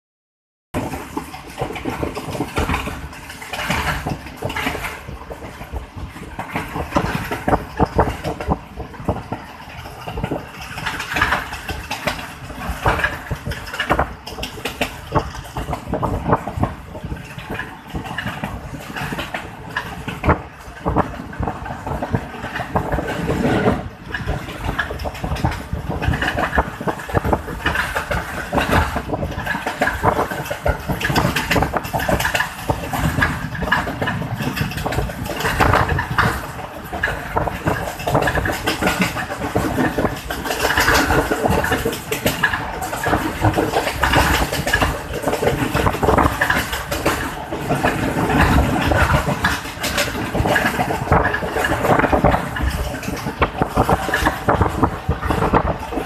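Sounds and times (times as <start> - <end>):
carriage rattles and knocks: 0.8 - 56.0
train wheels rumbling: 0.8 - 56.0.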